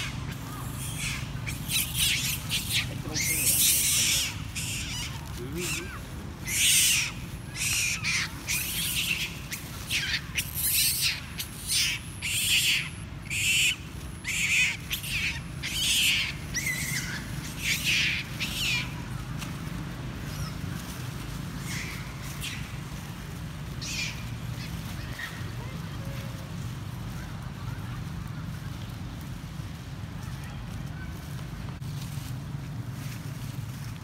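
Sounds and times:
monkey screaming: 0.0s - 19.2s, 21.6s - 22.8s, 23.8s - 25.6s.

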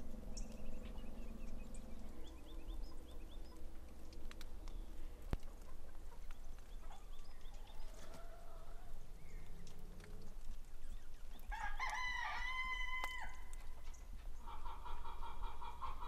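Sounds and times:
fainter rooster calls: 11.5s - 13.5s
rooster crowing: 11.5s - 13.5s.

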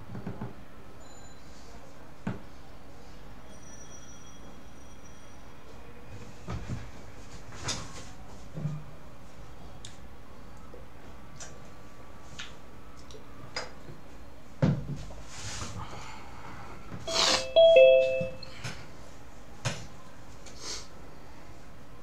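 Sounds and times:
two-note chime: 17.1s - 18.5s.

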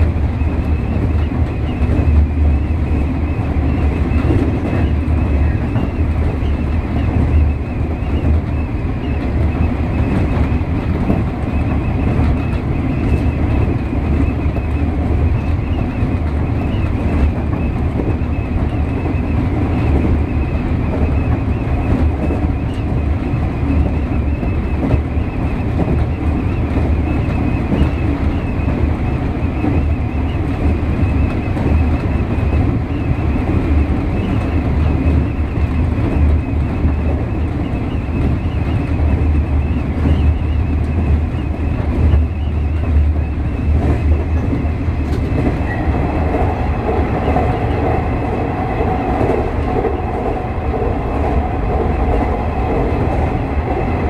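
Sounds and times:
train wheels rumbling on rails: 0.0s - 54.0s
wind rushing past window: 0.0s - 54.0s
steady jet-like whine: 43.6s - 54.0s.

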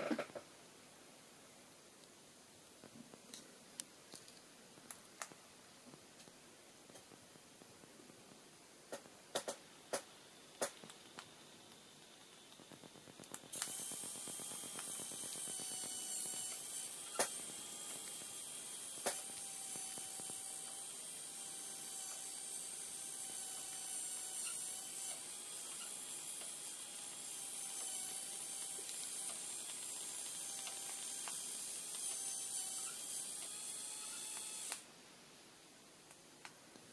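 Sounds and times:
sharp clicks: 8.9s - 18.3s, 23.6s - 34.8s
small electric motor whining: 12.4s - 34.9s.

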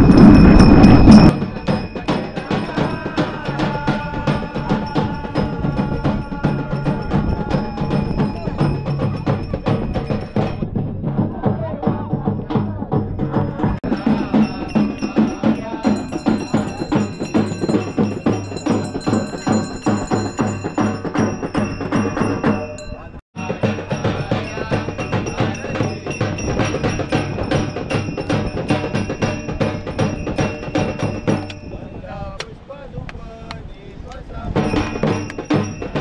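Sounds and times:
drum strikes: 0.0s - 31.7s, 34.5s - 36.0s
metallic ringing strikes: 13.9s - 31.8s.

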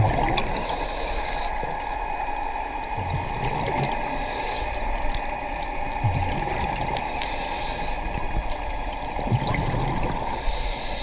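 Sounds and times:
low bubbling surges: 0.0s - 0.7s, 2.7s - 4.1s, 5.8s - 7.0s, 9.1s - 10.3s
underwater hiss: 0.2s - 2.3s, 3.6s - 5.6s, 6.7s - 8.6s, 9.9s - 11.0s
faint clicks: 1.2s - 2.6s, 4.6s - 6.1s, 6.9s - 7.5s.

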